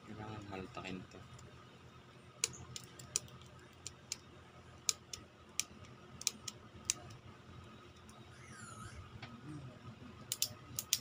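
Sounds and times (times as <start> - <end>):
bicycle shifter clicking: 10.3 - 11.0.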